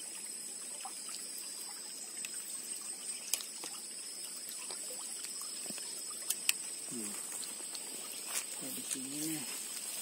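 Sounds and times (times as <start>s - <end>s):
water trickling in a ditch: 0.0s - 10.0s.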